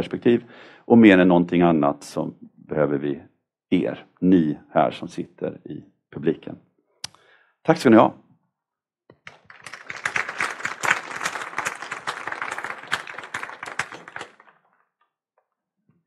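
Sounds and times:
audience applauding: 9.3 - 14.7.

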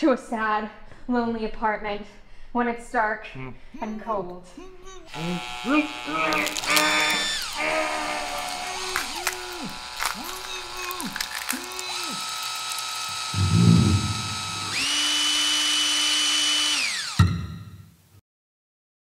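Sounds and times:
power tool motor revving: 5.1 - 17.2
low rumbling thud: 13.3 - 14.8
sharp thump: 13.3 - 14.8.

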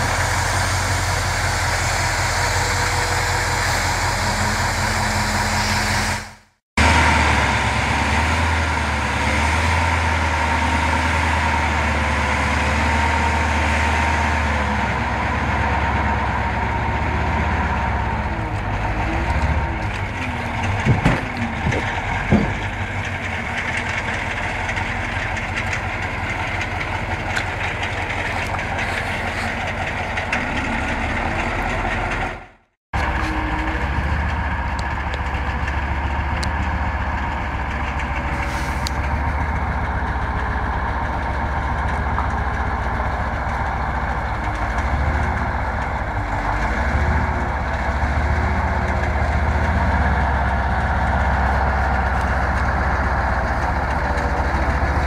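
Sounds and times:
heavy diesel truck engine: 0.0 - 55.0
sharp knocks: 20.6 - 23.2.

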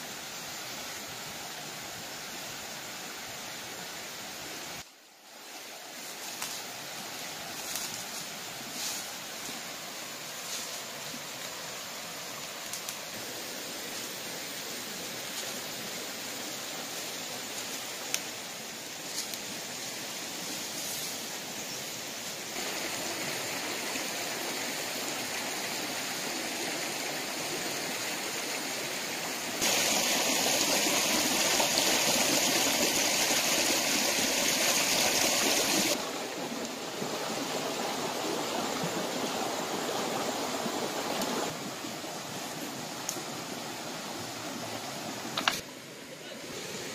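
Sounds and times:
stream running over rocks: 0.0 - 46.9.

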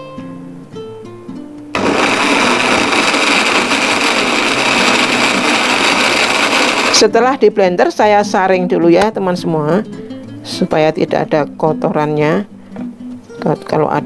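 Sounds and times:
acoustic guitar music: 0.0 - 3.0, 3.7 - 5.5, 9.7 - 14.0
blender whirring: 1.8 - 7.1.

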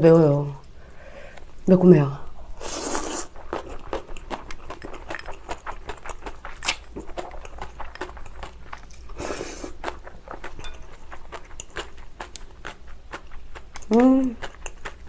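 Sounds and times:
slurping noodles: 2.6 - 10.5
chewing with wet mouth clicks: 3.2 - 15.0.

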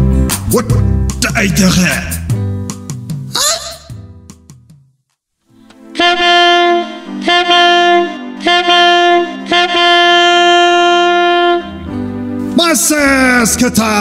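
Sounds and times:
wind instrument long notes: 5.8 - 12.2.

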